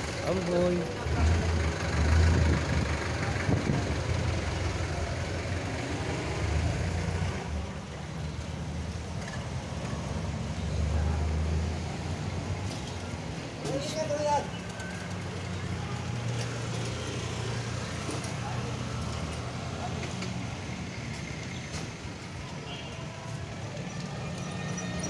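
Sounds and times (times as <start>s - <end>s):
motorcycle engines running: 0.0s - 11.4s
passing traffic: 0.0s - 25.0s.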